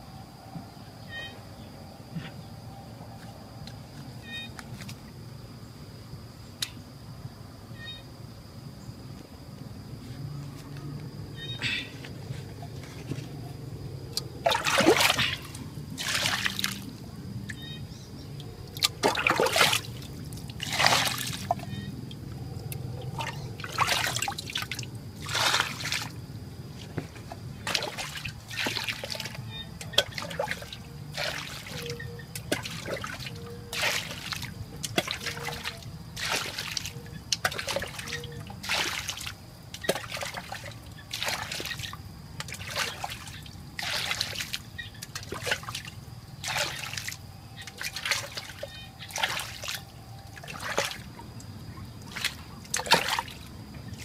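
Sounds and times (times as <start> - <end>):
muddy water sloshing and pouring: 11.6 - 54.0.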